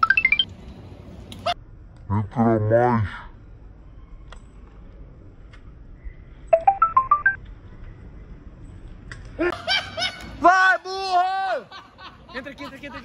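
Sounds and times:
phone ringtone electronic notes: 6.6 - 7.4.

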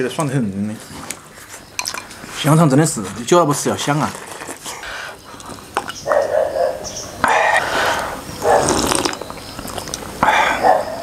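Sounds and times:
man slurping broth: 7.6 - 9.2.

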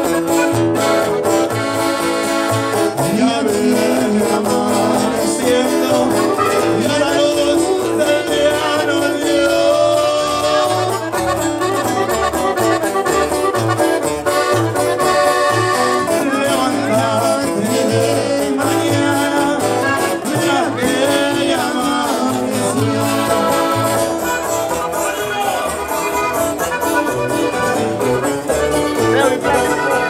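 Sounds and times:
accordion: 0.0 - 30.0
electric guitar: 0.0 - 30.0
person singing: 3.0 - 11.0, 15.8 - 24.0.

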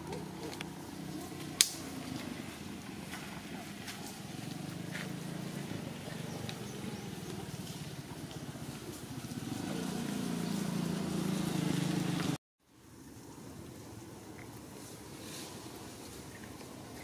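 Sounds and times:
low pulsing engine hum: 0.0 - 12.4.

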